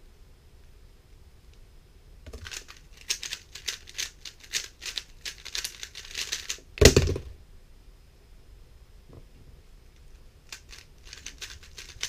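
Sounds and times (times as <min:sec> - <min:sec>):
plastic cube layers clicking: 0:02.3 - 0:07.1, 0:10.5 - 0:12.0
cube thumping down: 0:06.8 - 0:07.4.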